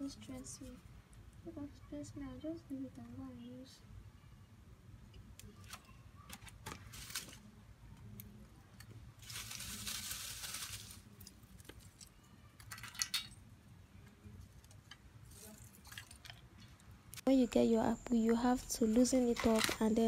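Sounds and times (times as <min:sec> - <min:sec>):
plastic bag rustling: 0:06.6 - 0:07.5, 0:09.2 - 0:12.0
charcoal and sticks clinking: 0:09.2 - 0:13.4, 0:14.6 - 0:16.9, 0:19.0 - 0:20.0.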